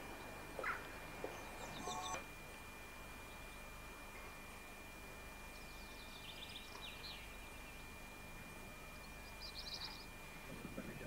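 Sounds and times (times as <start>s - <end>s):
faint bird calls: 0.5s - 2.2s.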